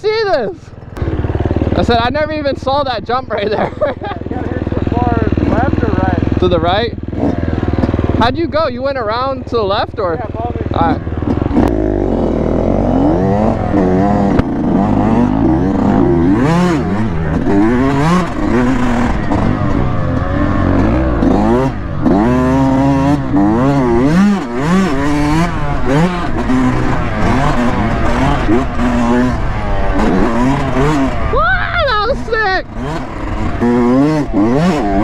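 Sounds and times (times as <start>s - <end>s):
dirt bike engine revving: 0.0s - 35.0s.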